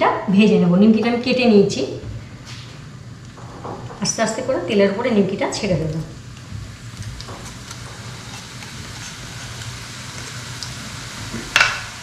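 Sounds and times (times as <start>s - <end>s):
dough sizzling in hot oil: 6.6s - 12.0s.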